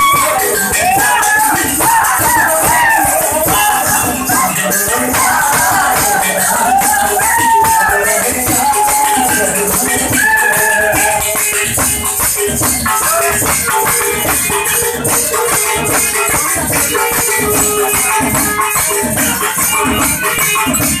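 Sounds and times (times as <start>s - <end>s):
man singing into microphone: 0.0s - 11.7s
jingling rattling percussion: 0.0s - 21.0s.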